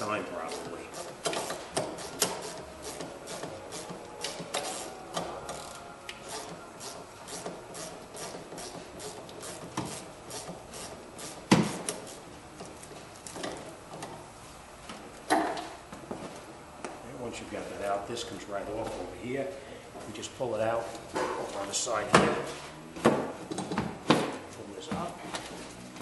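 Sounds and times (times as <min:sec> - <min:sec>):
hand ratchet clicking: 0:00.5 - 0:12.2.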